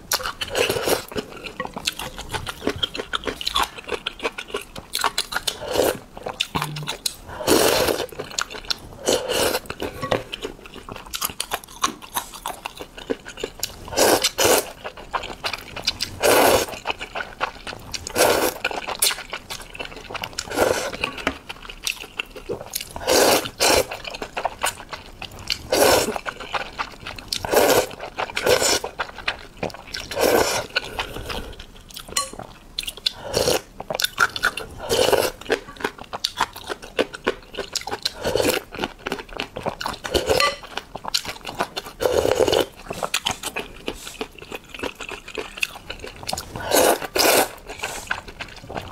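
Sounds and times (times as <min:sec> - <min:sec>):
slurping noodles: 0:07.4 - 0:08.1, 0:09.0 - 0:09.8, 0:13.8 - 0:14.8, 0:16.1 - 0:16.8, 0:20.4 - 0:21.0, 0:23.0 - 0:24.0, 0:25.6 - 0:26.2, 0:27.4 - 0:28.9, 0:30.0 - 0:31.6, 0:34.7 - 0:35.4, 0:42.0 - 0:44.3, 0:46.3 - 0:48.9.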